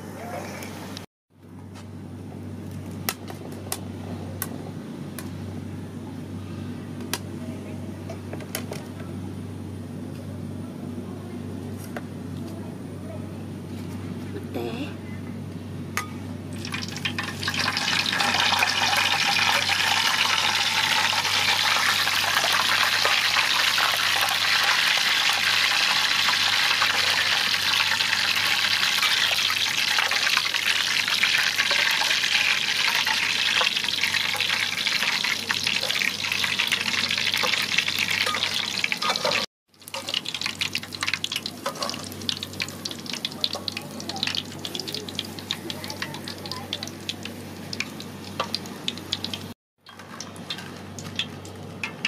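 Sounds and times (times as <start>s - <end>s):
chilies sizzling in hot oil: 16.5s - 52.0s.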